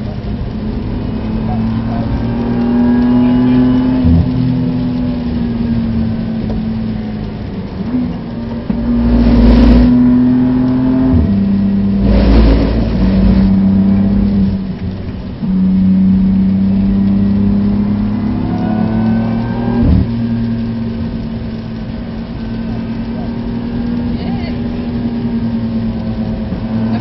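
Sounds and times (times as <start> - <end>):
car engine at speed: 0.0 - 27.0
rushing noise bursts: 7.6 - 15.7.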